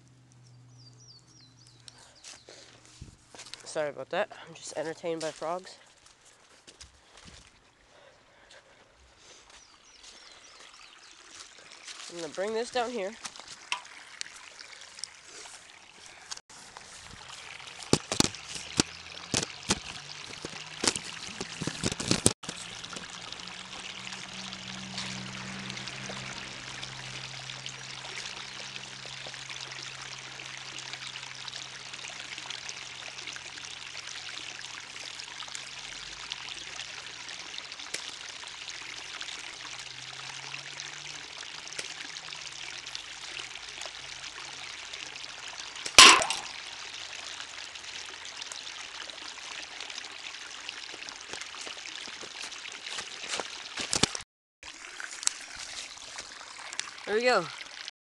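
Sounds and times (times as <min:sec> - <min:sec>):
flowing water hiss: 0:09.2 - 0:54.0
bb hitting metal can: 0:46.0 - 0:46.6.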